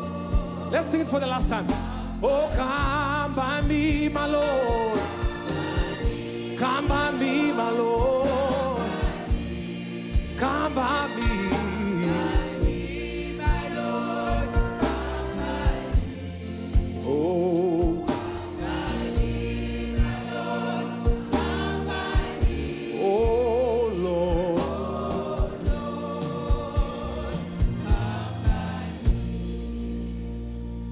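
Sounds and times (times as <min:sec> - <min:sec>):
sustained accompaniment chords: 0:00.0 - 0:30.9
man singing with vibrato: 0:00.7 - 0:08.9, 0:10.4 - 0:12.8, 0:17.0 - 0:18.4, 0:22.9 - 0:25.1.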